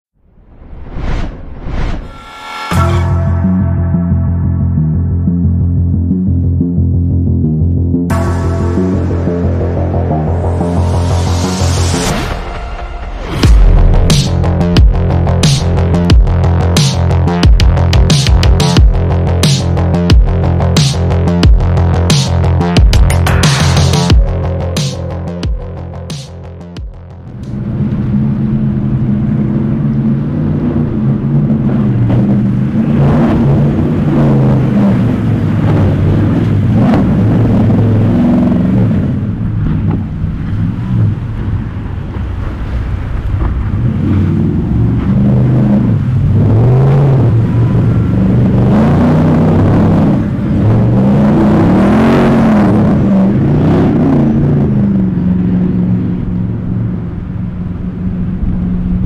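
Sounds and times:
speedboat engines revving: 14.3s - 59.0s.

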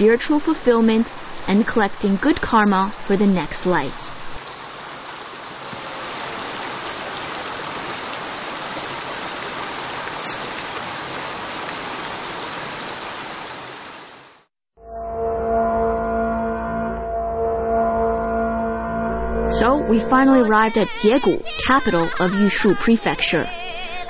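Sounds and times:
stream rushing over rocks: 0.0s - 14.5s.

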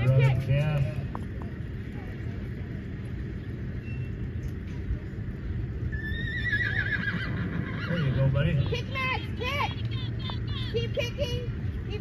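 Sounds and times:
horse whinnying: 5.9s - 8.3s.

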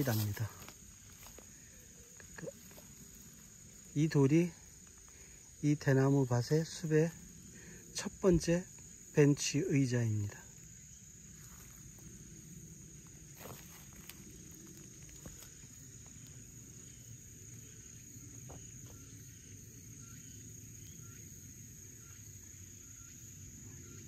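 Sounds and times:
footsteps on dry leaves: 0.0s - 1.7s, 11.3s - 12.3s, 13.0s - 16.4s
insects chirring: 0.0s - 24.0s.

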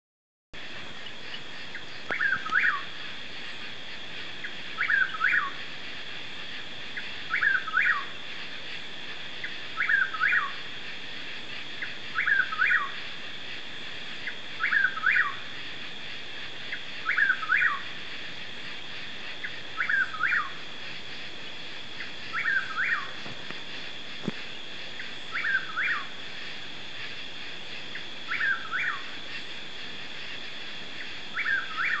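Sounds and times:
high background drone: 0.6s - 32.0s
bird whistled song: 1.0s - 2.9s, 4.4s - 5.6s, 6.9s - 8.1s, 9.4s - 10.7s, 11.8s - 13.1s, 14.2s - 15.5s, 16.7s - 17.9s, 19.4s - 20.6s, 22.0s - 23.2s, 25.0s - 26.1s, 27.9s - 29.5s, 31.0s - 32.0s.

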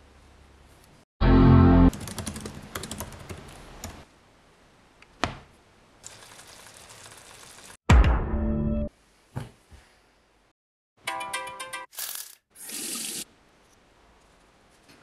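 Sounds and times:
laptop keyboard typing: 1.9s - 4.0s.

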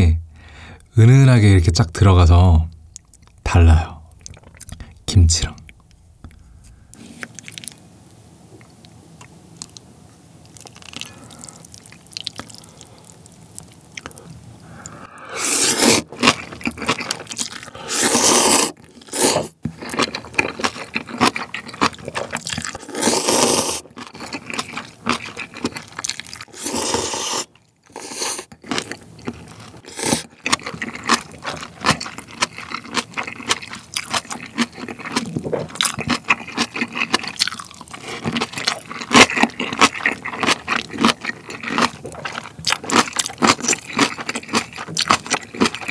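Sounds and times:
wet chewing: 4.2s - 4.9s, 7.1s - 7.8s, 10.4s - 45.9s
noodles being slurped: 15.4s - 45.9s.

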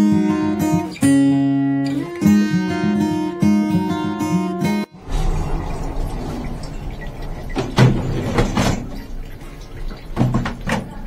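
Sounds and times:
dishwasher rack rattling: 5.0s - 11.0s.

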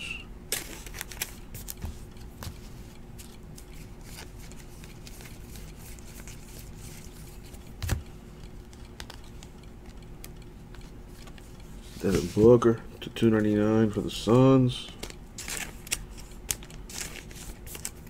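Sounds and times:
faint steady hum: 0.0s - 18.0s
cards being flipped through: 0.5s - 2.6s, 3.2s - 8.0s, 14.9s - 18.0s.

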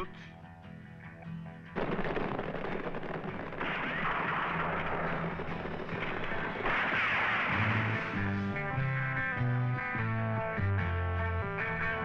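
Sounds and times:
rifle shots: 1.8s - 8.5s
background music with plucked bass: 8.1s - 12.0s.

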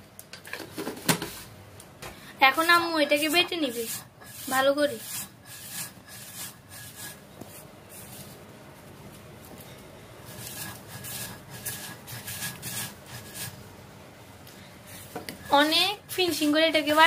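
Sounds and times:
stone roller scraping grinding stone: 2.6s - 7.2s, 10.3s - 13.6s.

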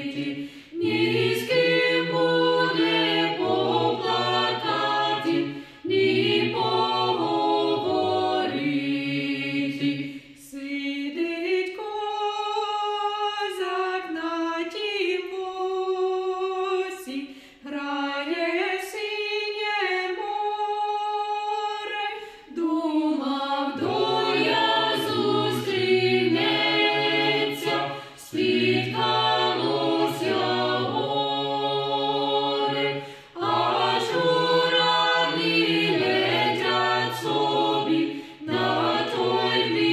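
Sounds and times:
a cappella choir singing: 0.0s - 39.9s
singers breathing: 0.3s - 0.8s, 5.4s - 5.9s, 10.0s - 10.4s, 17.2s - 17.6s, 22.2s - 22.5s, 27.8s - 28.3s, 32.9s - 33.4s, 38.0s - 38.4s.

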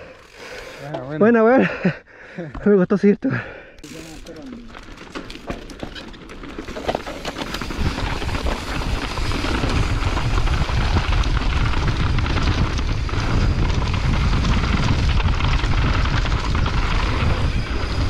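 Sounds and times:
bike rattling: 0.0s - 1.7s, 3.8s - 18.0s
tyres rolling over dirt and rock: 3.9s - 18.0s
wind buffeting microphone: 7.4s - 18.0s.

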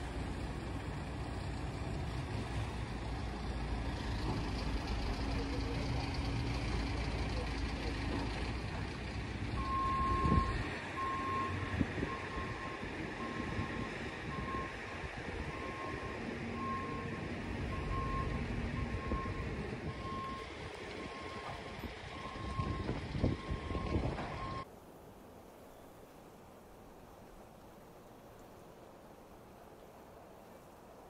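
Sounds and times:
reversing alarm beeping: 9.6s - 24.6s.

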